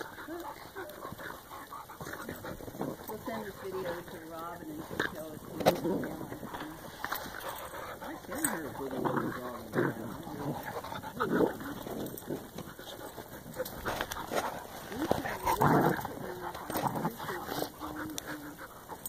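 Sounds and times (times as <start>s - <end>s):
dogs vocalising while play-fighting: 0.0s - 19.0s.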